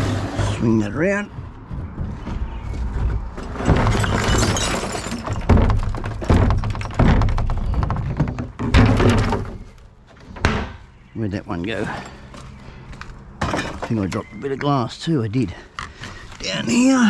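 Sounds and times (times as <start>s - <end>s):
rubbish thunking in plastic bin: 3.5s - 9.7s.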